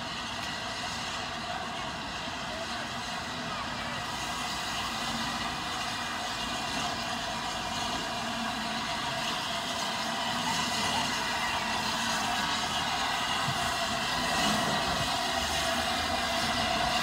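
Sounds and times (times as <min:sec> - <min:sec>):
steam locomotive moving slowly: 0:00.0 - 0:17.0.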